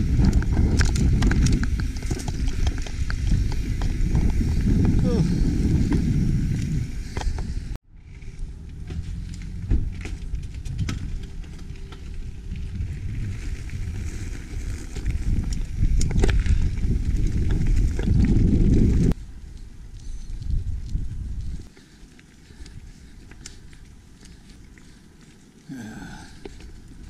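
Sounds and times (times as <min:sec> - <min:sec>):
bike knocks and rattles: 0:00.0 - 0:07.6, 0:08.7 - 0:19.2
wind rush on microphone: 0:00.0 - 0:08.3, 0:09.0 - 0:21.7
tyres rolling over gravel: 0:08.0 - 0:19.2.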